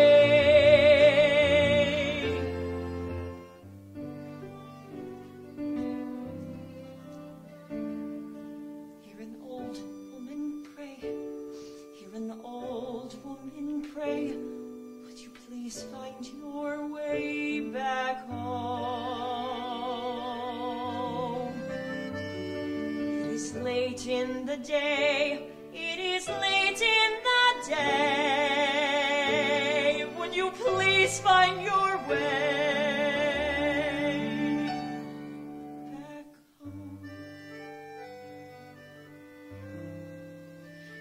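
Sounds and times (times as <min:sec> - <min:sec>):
singing with wide vibrato: 0:00.0 - 0:03.1, 0:12.0 - 0:22.1, 0:23.0 - 0:37.4
soft musical accompaniment: 0:00.0 - 0:41.0.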